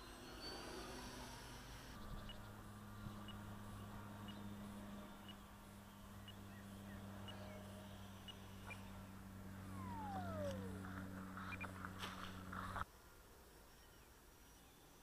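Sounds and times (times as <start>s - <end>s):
electric ducted fan whine: 0.0s - 12.9s
steady low hum: 0.0s - 13.8s.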